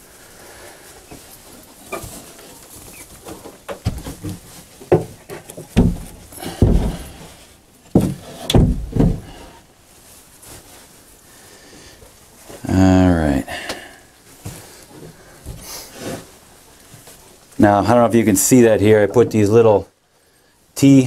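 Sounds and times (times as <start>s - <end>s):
wooden box knocking and bumping: 3.7s - 7.2s, 7.9s - 9.4s.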